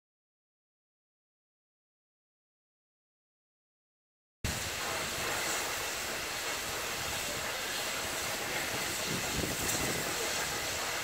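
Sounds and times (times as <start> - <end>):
steam hissing: 4.5 - 11.0.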